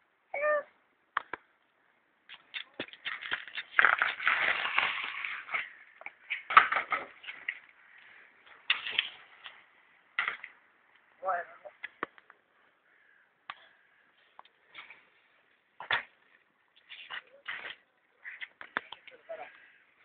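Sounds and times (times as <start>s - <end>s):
bike wheels rolling and scraping: 2.4s - 11.2s, 14.1s - 20.0s.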